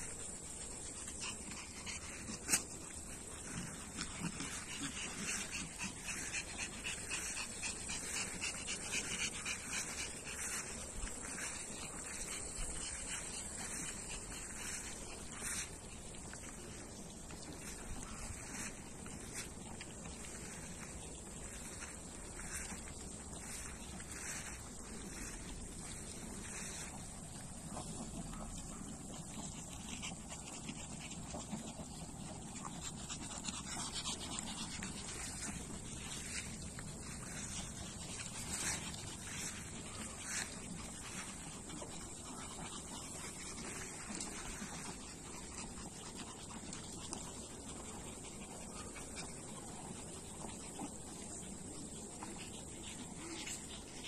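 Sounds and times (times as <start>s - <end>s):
dogs panting: 0.0s - 54.0s.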